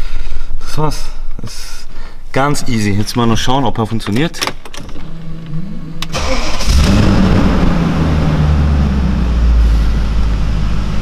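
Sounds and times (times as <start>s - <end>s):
car engine starting and idling: 4.6s - 11.0s.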